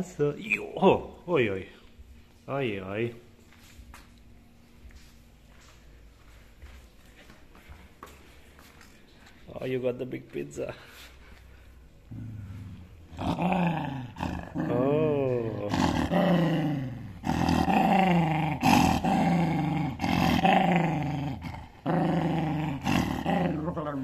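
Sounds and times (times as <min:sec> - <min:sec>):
dog growling: 0:12.1 - 0:23.9.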